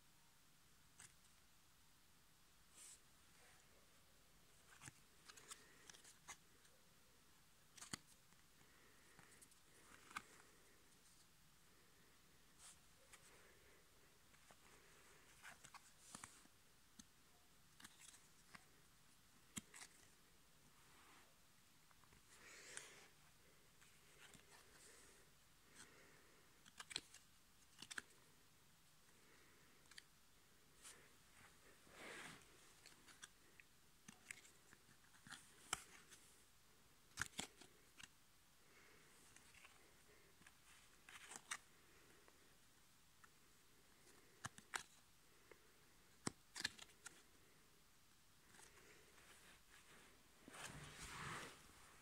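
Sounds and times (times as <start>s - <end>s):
cardboard cards clicking and rustling: 7.7s - 8.2s, 8.9s - 10.8s, 17.7s - 18.8s, 19.5s - 20.2s, 26.6s - 28.2s, 37.1s - 38.1s, 46.2s - 47.2s.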